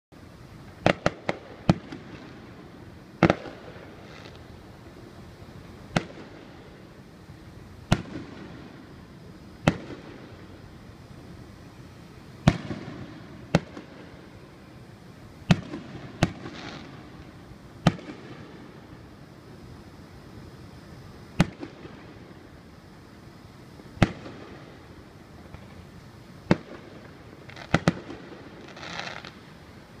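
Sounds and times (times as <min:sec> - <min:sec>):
fireworks bursting with sharp bangs: 0:00.4 - 0:19.6, 0:20.4 - 0:22.7, 0:23.8 - 0:30.0
fireworks bangs: 0:00.8 - 0:02.6, 0:03.2 - 0:04.5, 0:07.9 - 0:09.0, 0:09.6 - 0:10.5, 0:12.4 - 0:14.5, 0:15.4 - 0:18.8, 0:26.4 - 0:29.4.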